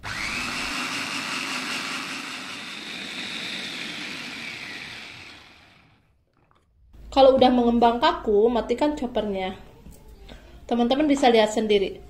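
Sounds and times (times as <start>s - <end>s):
electric food chopper motor whining: 0.0s - 6.1s.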